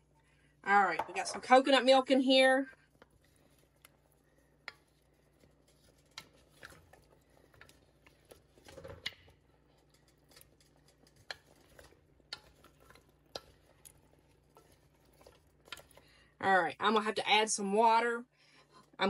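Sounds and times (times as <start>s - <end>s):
soft clicks and scrapes: 2.7s - 16.1s
spoon stirring vegetables in a pot: 2.7s - 16.4s.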